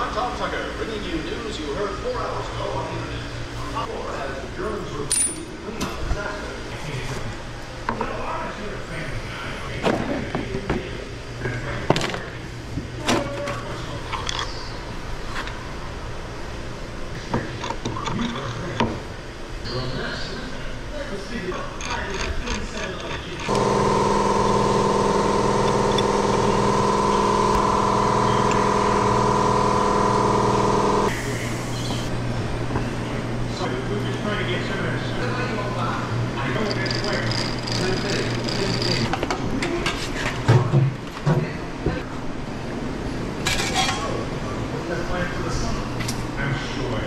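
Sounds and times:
low machine hum: 0:23.5 - 0:39.1.

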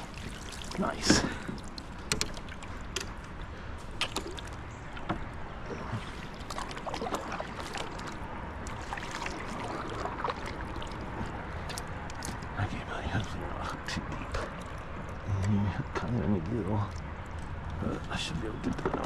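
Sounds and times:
paddle splashing in water: 0:00.0 - 0:12.4
light clicks and knocks: 0:01.0 - 0:03.4, 0:15.0 - 0:19.0.

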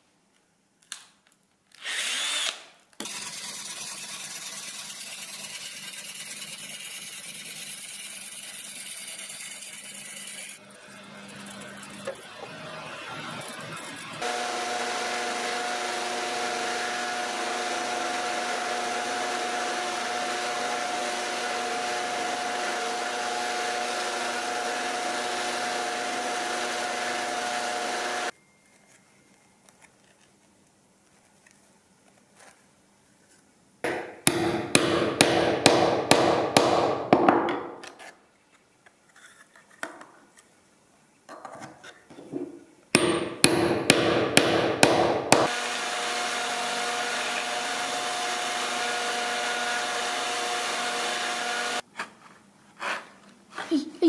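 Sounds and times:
belt sander humming: 0:09.6 - 0:28.3, 0:43.0 - 0:51.8.

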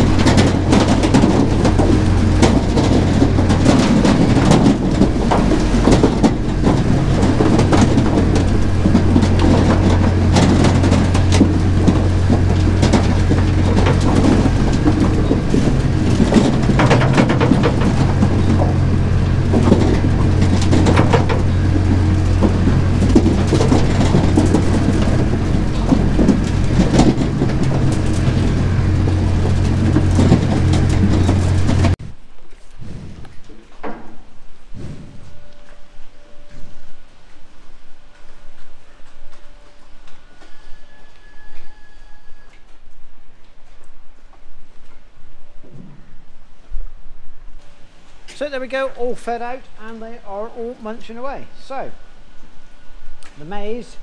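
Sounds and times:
mixing mechanism clattering: 0:00.0 - 0:32.0
low machine hum: 0:00.0 - 0:54.0.

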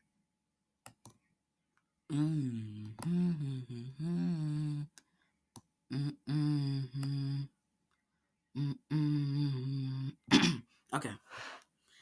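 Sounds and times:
person humming: 0:02.1 - 0:05.0, 0:05.9 - 0:07.6, 0:08.6 - 0:10.3.

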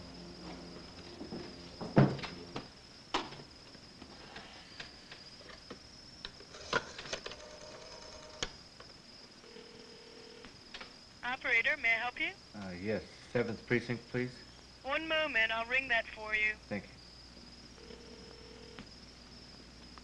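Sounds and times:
crickets trilling: 0:00.0 - 0:20.0
telephone earpiece tone: 0:17.8 - 0:18.9.

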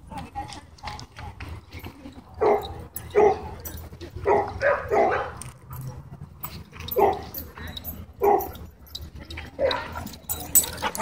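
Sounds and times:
dog barking: 0:02.4 - 0:03.5, 0:04.2 - 0:05.4, 0:08.2 - 0:08.5.

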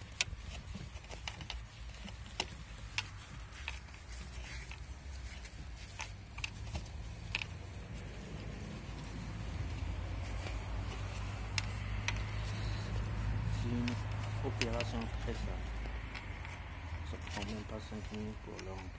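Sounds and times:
low background rumble: 0:00.0 - 0:18.9
small clicks and knocks: 0:00.0 - 0:18.9.

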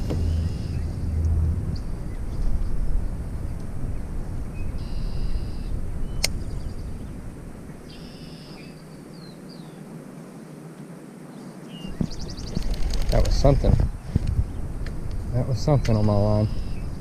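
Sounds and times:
wind rumbling on microphone: 0:00.0 - 0:17.0
bird calling in buzzy phrases: 0:15.7 - 0:17.0.

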